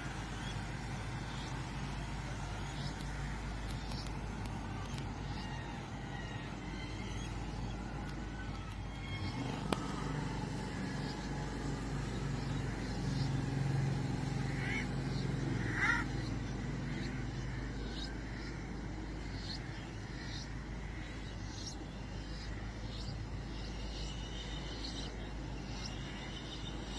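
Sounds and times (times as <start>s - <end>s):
road traffic hum: 0.0s - 26.9s.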